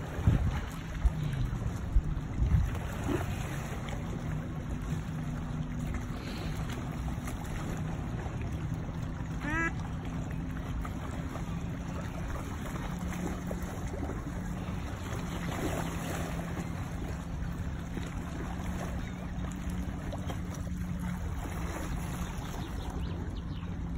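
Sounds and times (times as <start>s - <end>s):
wind on microphone: 0.0s - 4.1s
steady low hum: 0.0s - 23.9s.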